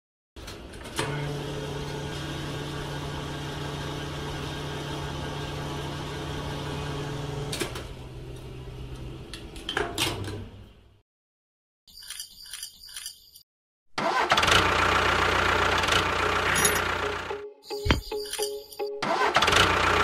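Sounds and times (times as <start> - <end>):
small clicks: 11.9 - 13.4.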